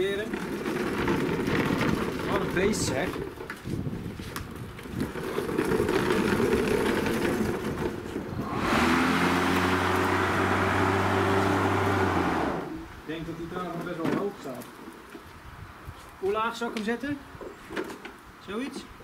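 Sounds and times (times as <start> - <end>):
electric lawn mower running: 0.3 - 2.6, 5.0 - 12.9
grass being cut: 8.4 - 12.8.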